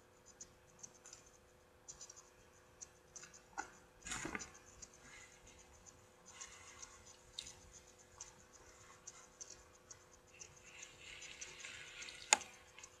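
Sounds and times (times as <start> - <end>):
quiet chewing: 2.8 - 13.0.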